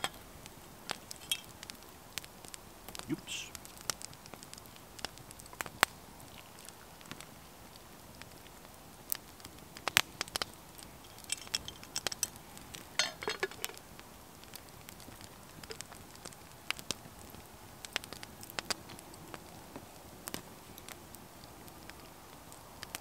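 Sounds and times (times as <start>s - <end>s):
campfire crackling and popping: 0.0s - 23.0s
metal kettle and cup clinking: 13.0s - 13.8s.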